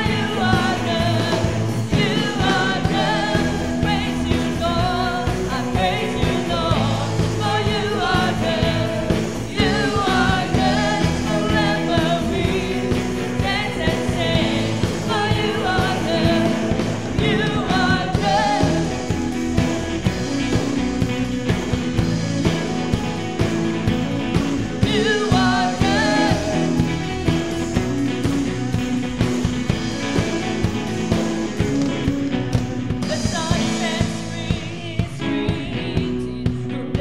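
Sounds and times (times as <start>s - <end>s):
people singing into microphones: 0.0s - 21.2s, 23.8s - 28.2s, 32.9s - 37.0s
drum kit beat: 0.0s - 37.0s
guitars: 0.0s - 37.0s.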